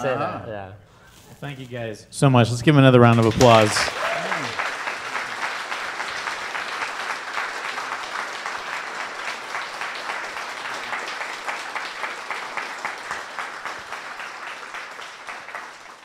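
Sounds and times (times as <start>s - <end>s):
audience applauding: 2.9s - 16.0s.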